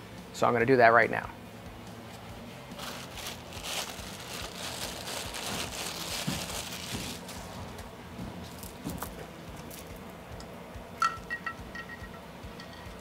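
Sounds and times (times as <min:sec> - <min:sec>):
chain rustling and crinkling: 0:02.8 - 0:07.6.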